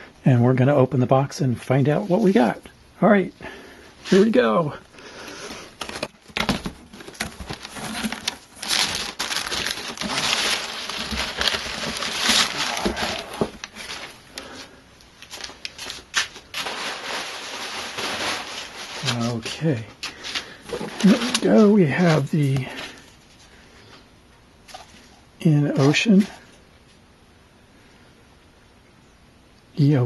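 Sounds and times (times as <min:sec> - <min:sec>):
paper rustling and crinkling: 0:05.3 - 0:24.0.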